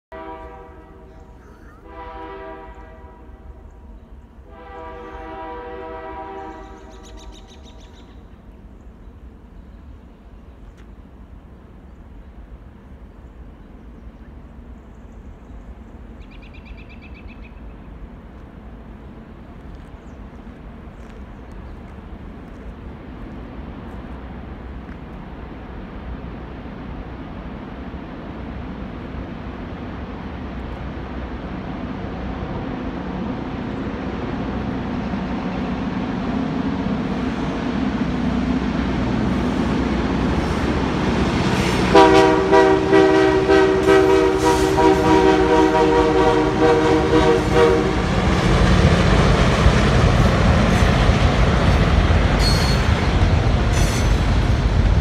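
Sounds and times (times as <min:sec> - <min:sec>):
locomotive horn blasts: 0:00.1 - 0:03.6, 0:04.4 - 0:07.0, 0:41.6 - 0:48.2
diesel freight train rumble: 0:00.1 - 0:55.0.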